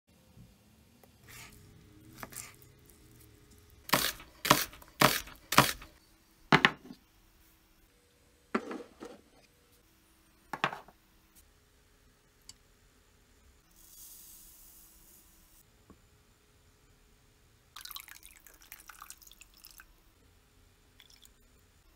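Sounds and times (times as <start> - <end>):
knife chopping on plastic board: 3.9 - 5.9
kitchenware knocks: 6.5 - 7.0, 8.6 - 9.2, 10.6 - 10.9.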